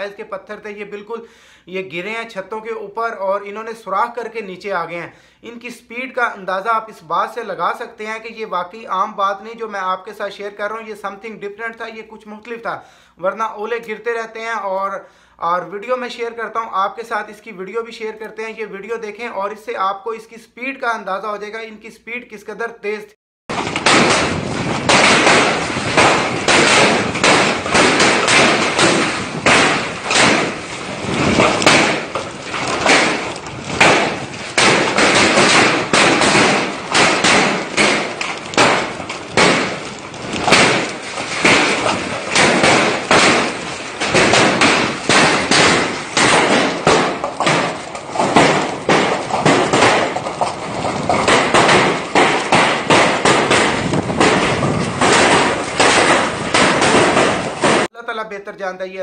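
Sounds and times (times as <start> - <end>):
hailstones pelting down: 23.5 - 57.9.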